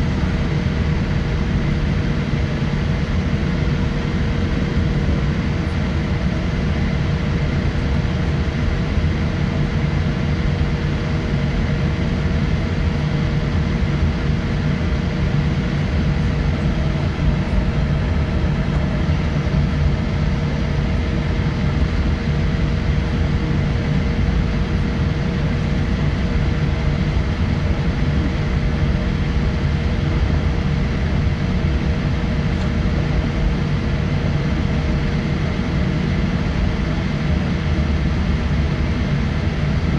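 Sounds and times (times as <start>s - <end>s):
aircraft cabin low rumble: 0.0s - 39.9s
engine hum: 0.0s - 39.9s.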